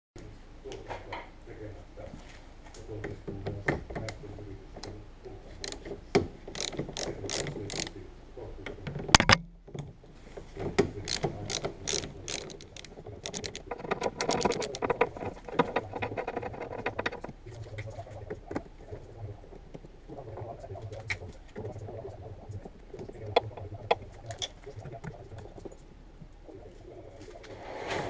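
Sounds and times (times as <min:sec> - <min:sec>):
hand ratchet clicking: 0:06.5 - 0:08.0, 0:11.0 - 0:17.3.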